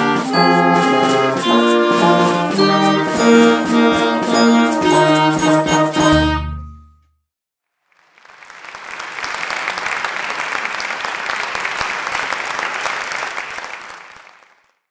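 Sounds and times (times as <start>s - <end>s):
crowd applauding: 7.8s - 14.9s.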